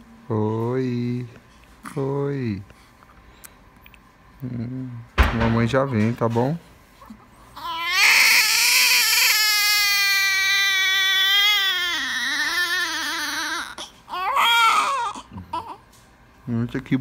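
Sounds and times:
newborn baby crying: 0:07.0 - 0:15.9.

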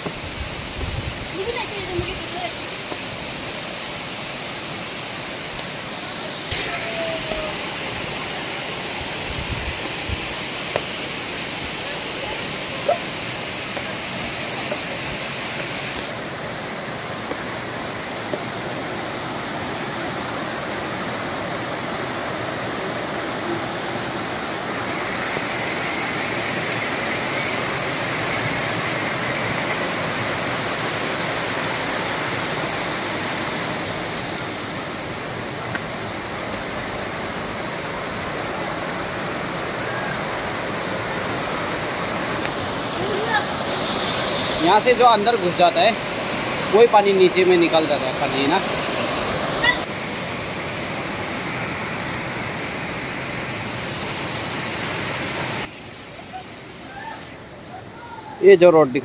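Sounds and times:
water rushing between boulders: 0:00.0 - 0:55.7.

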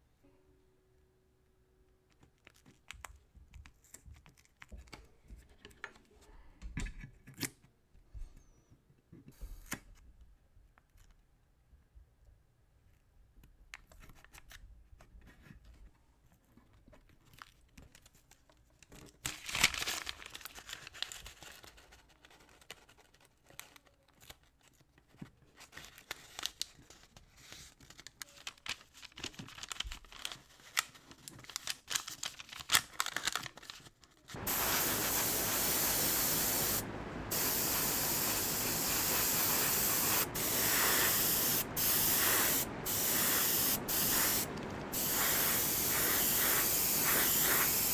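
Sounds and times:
paper crinkling: 0:16.8 - 0:35.7
airbrush spraying hiss: 0:34.4 - 0:47.9.

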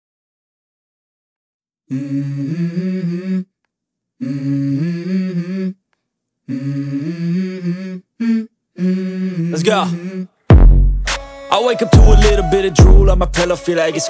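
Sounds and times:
person humming wordless phrase: 0:01.9 - 0:03.5, 0:06.5 - 0:10.4, 0:11.5 - 0:14.0.

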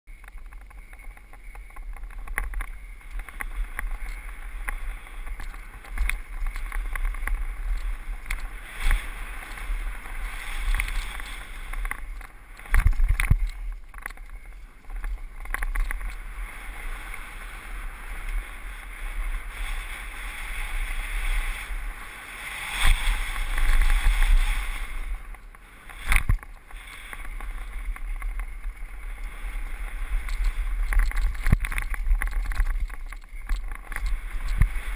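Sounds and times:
bike rattles and clunks: 0:00.1 - 0:16.8, 0:25.1 - 0:34.9
wind rumbling over microphone: 0:00.1 - 0:34.9.

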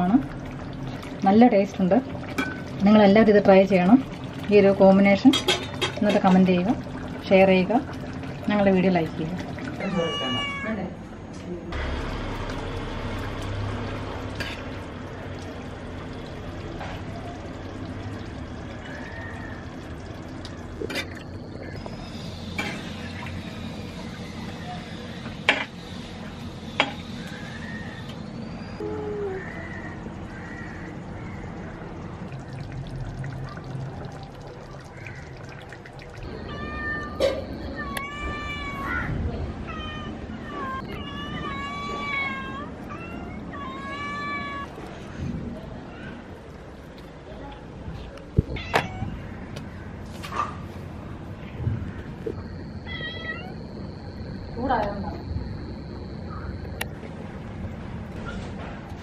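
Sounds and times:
low steady hum: 0:00.0 - 0:59.0
cat meowing: 0:09.8 - 0:10.9, 0:36.3 - 0:44.8, 0:48.4 - 0:49.3, 0:52.8 - 0:53.7
low hum: 0:49.0 - 0:59.0.

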